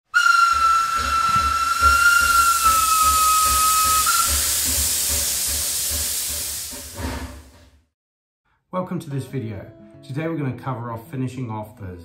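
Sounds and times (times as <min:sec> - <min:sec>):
steam locomotive whistle: 0:00.1 - 0:06.7
steam engine exhaust beats: 0:00.1 - 0:07.7
steam hissing: 0:00.1 - 0:07.7.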